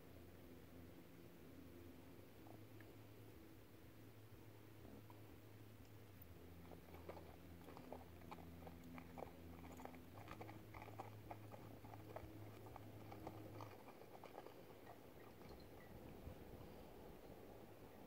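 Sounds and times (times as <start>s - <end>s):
low steady hum: 0.0s - 18.0s
faint clicks and crackles: 5.8s - 16.8s.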